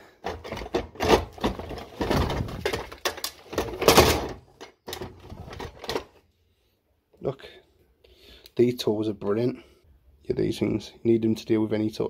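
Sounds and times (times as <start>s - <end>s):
toolbox contents clattering: 0.0s - 6.2s.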